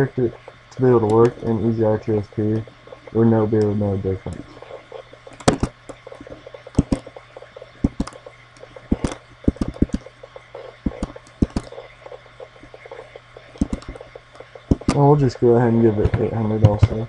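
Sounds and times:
faint low hum: 0.0s - 17.0s
mouse and keyboard clicks: 5.4s - 7.2s, 7.8s - 10.1s, 10.8s - 11.9s, 13.6s - 14.0s, 14.7s - 15.0s.

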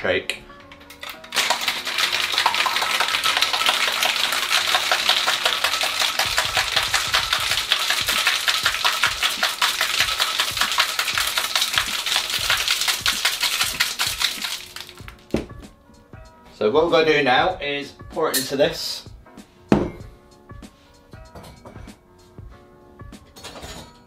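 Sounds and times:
ice rattling in cocktail shaker: 0.6s - 15.3s.

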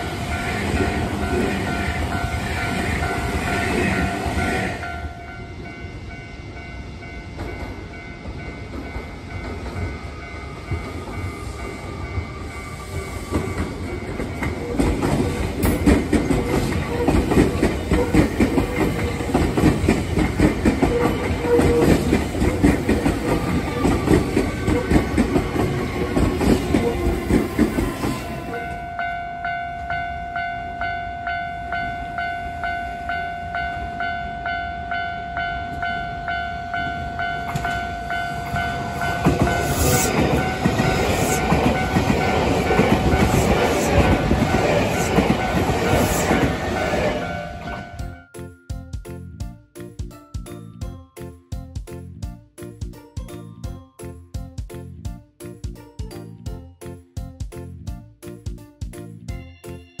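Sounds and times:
steady train whine: 0.0s - 48.3s
train wheels clattering over rail joints: 13.0s - 28.2s.

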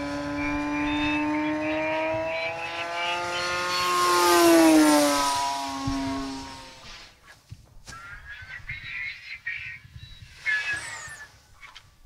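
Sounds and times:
electric motor and propeller buzz: 0.0s - 7.2s.

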